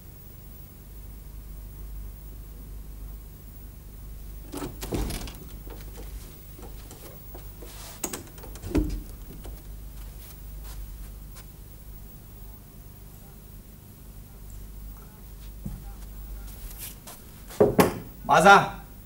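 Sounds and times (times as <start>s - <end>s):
door latch clicks: 4.4s - 9.7s
door shutting thud: 4.4s - 9.9s
wooden door opening: 4.4s - 10.2s.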